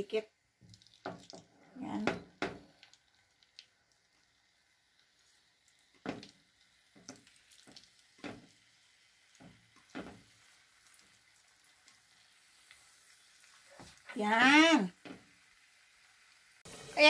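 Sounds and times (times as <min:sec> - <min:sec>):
potato slices tapping into pan: 0:00.7 - 0:03.7, 0:05.9 - 0:08.6, 0:09.3 - 0:10.3.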